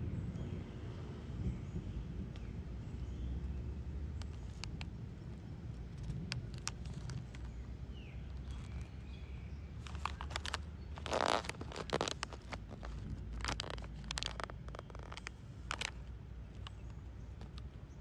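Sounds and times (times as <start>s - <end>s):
snack package crinkling and clicking: 4.2s - 7.6s, 9.8s - 17.8s.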